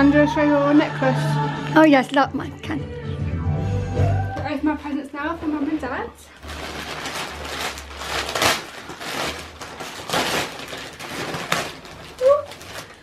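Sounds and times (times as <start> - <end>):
wrapping paper crinkling and tearing: 5.4 - 13.0.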